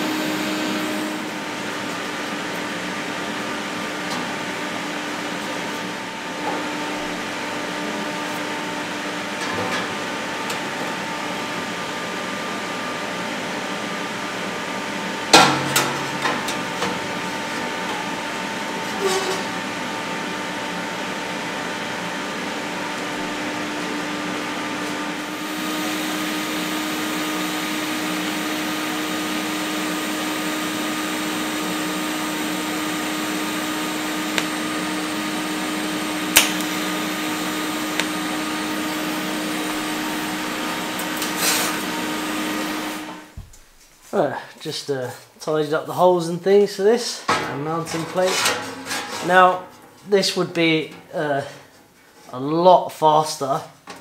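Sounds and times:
welding arc hissing: 0.0 - 1.8, 25.3 - 43.2
workshop machine hum: 0.0 - 44.5.

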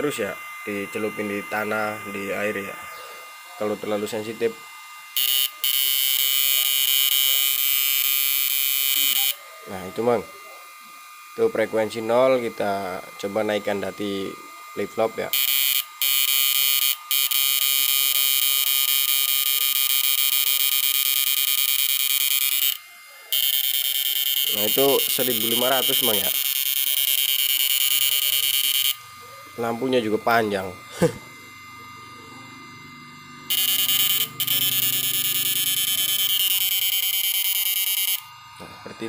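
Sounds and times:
faint hum and whine: 0.0 - 39.0
high-pitched electrical buzz: 0.0 - 39.0.

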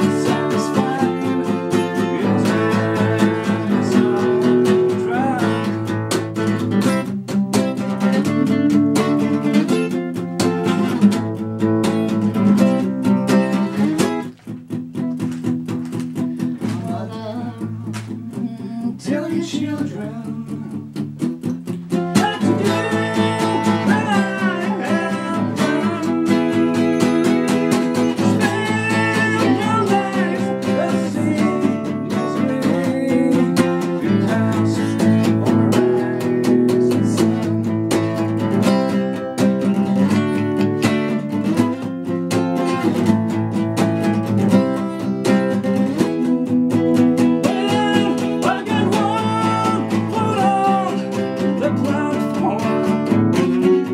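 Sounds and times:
man singing: 0.0 - 6.5, 8.0 - 10.8, 16.4 - 21.0, 21.9 - 39.2, 44.7 - 53.9
acoustic guitar strummed and picked: 0.0 - 53.9.

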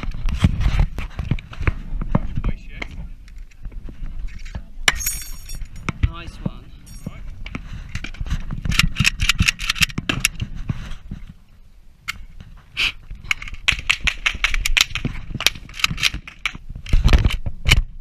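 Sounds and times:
rifle metallic clicking and clattering: 8.7 - 10.4, 13.2 - 17.9.

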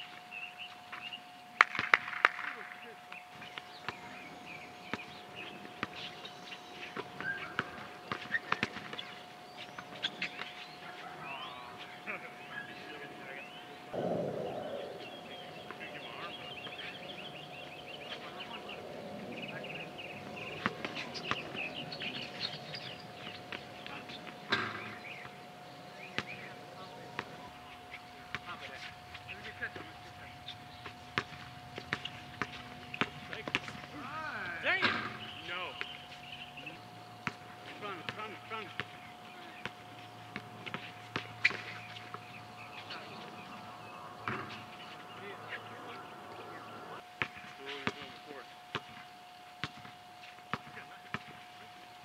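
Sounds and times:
birds chirping: 0.0 - 52.0
faint steady hum: 0.0 - 52.0
basketball bouncing on court: 7.0 - 9.1, 30.8 - 33.7, 37.2 - 42.2, 47.2 - 48.1, 48.7 - 49.0, 49.6 - 51.4
players' footsteps: 15.2 - 25.4, 26.0 - 46.6
basketball bouncing on hard court: 31.1 - 33.7, 49.6 - 49.9.

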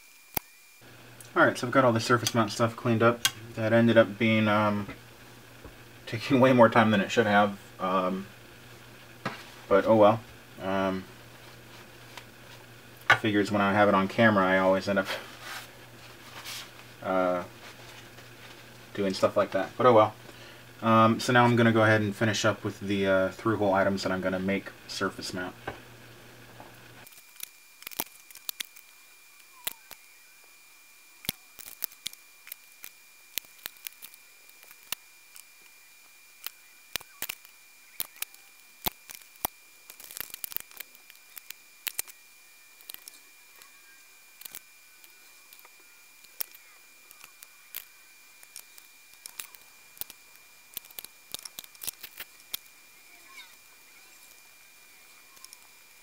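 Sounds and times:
faint high-pitched whine: 0.0 - 56.0
small tools clicking and tapping: 36.4 - 42.2, 42.8 - 43.7, 44.4 - 52.7, 55.4 - 56.0.

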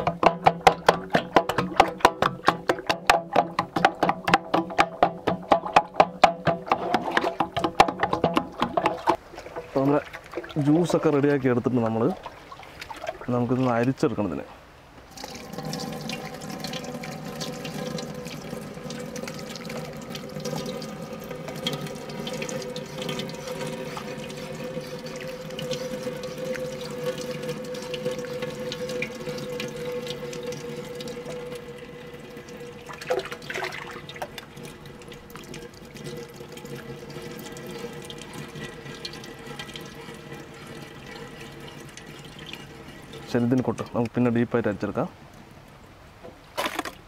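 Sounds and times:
juice pouring through strainer: 0.0 - 13.8, 15.1 - 44.1.

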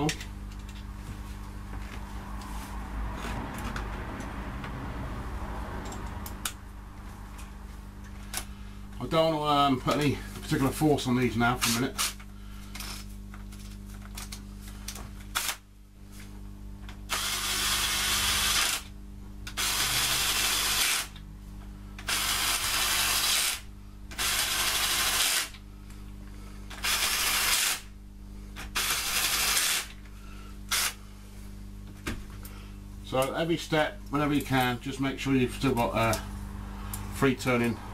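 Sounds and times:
cordless drill running: 17.1 - 18.9, 19.5 - 21.2, 22.0 - 25.6, 26.7 - 27.9, 28.7 - 30.0, 30.7 - 31.0.

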